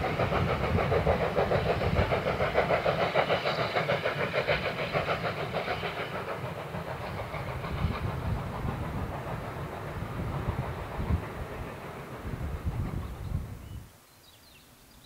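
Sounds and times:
steam locomotive rhythmic beat: 0:00.0 - 0:13.6
wind rumble on microphone: 0:12.2 - 0:13.9.

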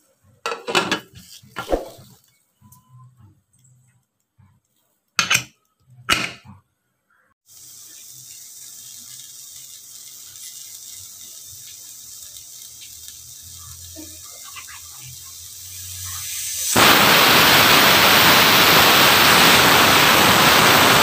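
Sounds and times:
pressure cooker hissing: 0:07.5 - 0:21.0.

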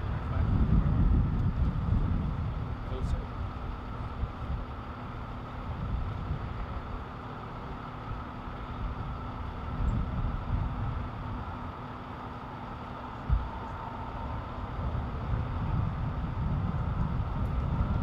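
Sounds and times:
low rumble: 0:00.0 - 0:04.7, 0:13.1 - 0:18.0
vehicle engines idling: 0:00.0 - 0:18.0.

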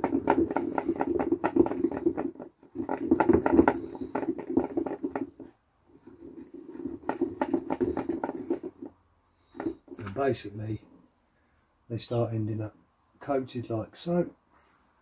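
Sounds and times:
bait balls rattling in plastic bucket: 0:00.0 - 0:10.2.

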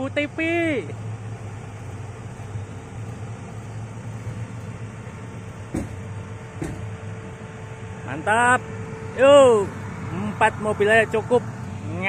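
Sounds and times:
engines idling: 0:00.0 - 0:12.0
brief knock: 0:05.7 - 0:06.9.

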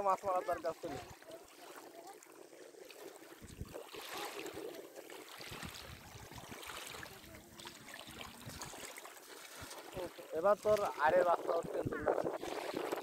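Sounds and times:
river water sloshing and splashing: 0:00.0 - 0:13.0
wind buffeting microphone: 0:03.3 - 0:06.6, 0:09.6 - 0:13.0.

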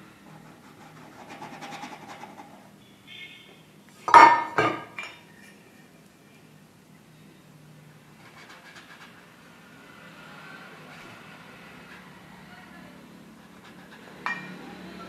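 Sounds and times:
metal utensil clinking: 0:14.2 - 0:14.6.

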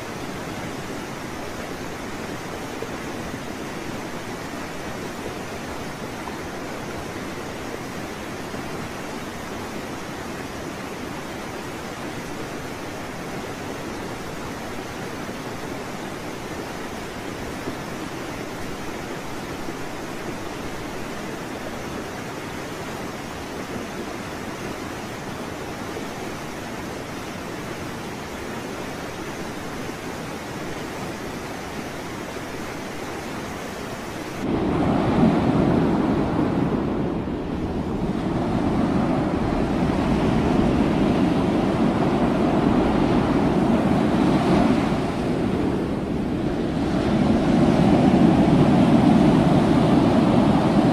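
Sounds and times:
water churning around boat: 0:00.0 - 0:50.9.

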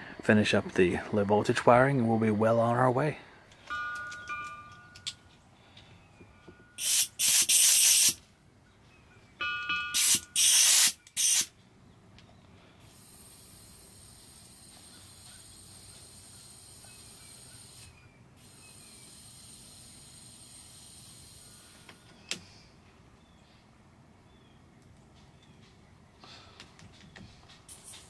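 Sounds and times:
hissing blasts of gas: 0:06.8 - 0:08.2, 0:10.0 - 0:11.5, 0:12.8 - 0:21.9
gas whistle: 0:09.9 - 0:11.5.

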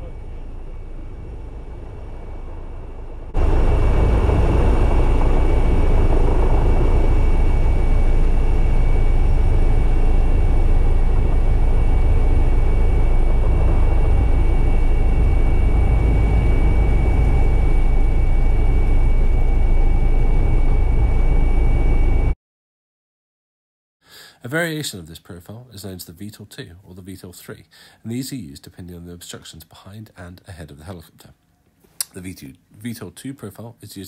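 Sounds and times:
helicopter rotor rumble: 0:00.0 - 0:22.3
high turbine whine: 0:00.0 - 0:22.4.

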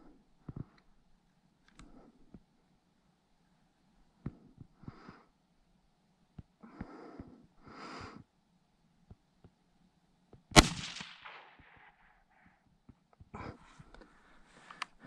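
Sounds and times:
rifle shot: 0:10.6 - 0:12.1.

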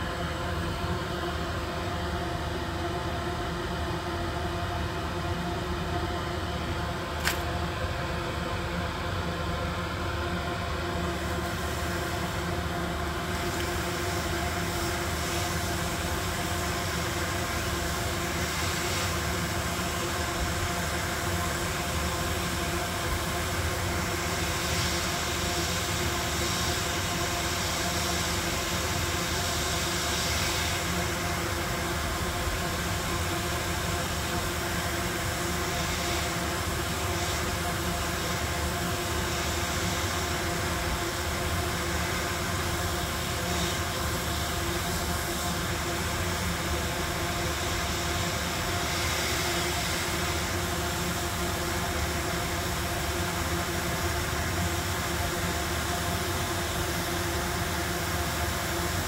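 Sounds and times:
hot air blower fan hum: 0:00.0 - 0:59.0
sharp click: 0:07.2 - 0:07.5.

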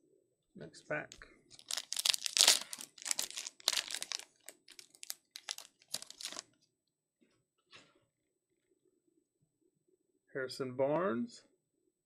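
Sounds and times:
cards rustling: 0:01.5 - 0:06.4
foil wrapper tearing: 0:01.6 - 0:06.4.

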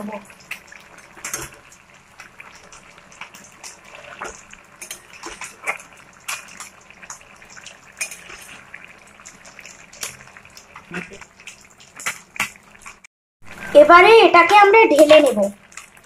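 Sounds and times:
metal ladle scraping a pan: 0:08.0 - 0:08.7.

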